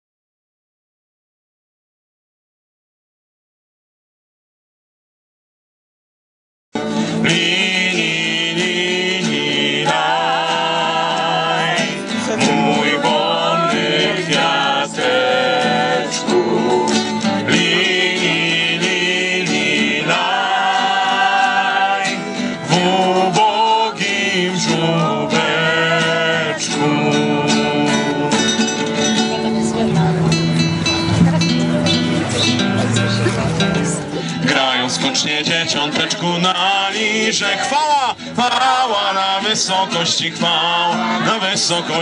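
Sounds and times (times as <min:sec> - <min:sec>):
acoustic guitar strumming: 0:06.8 - 0:42.0
voices singing a carol: 0:07.1 - 0:30.1, 0:34.2 - 0:42.0.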